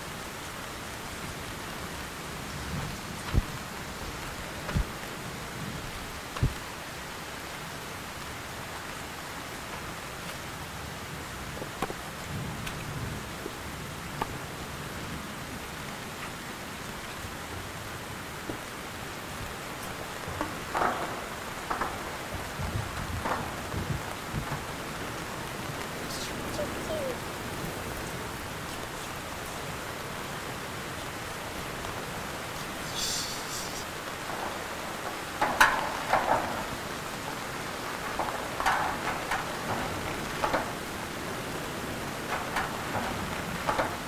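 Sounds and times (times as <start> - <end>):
steady rain falling: 0.0 - 44.0
sharp taps and knocks: 19.8 - 24.7, 38.1 - 40.9.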